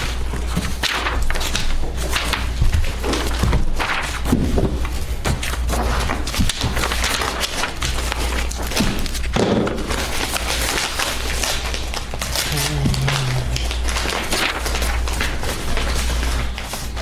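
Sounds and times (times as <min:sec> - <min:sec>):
paper rustling: 0:00.0 - 0:17.0
steady low hum: 0:11.9 - 0:16.8.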